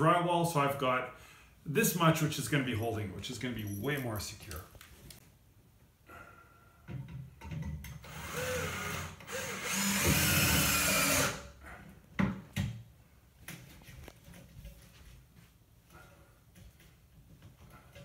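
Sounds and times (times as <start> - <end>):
power drill driving a screw: 8.0 - 11.4.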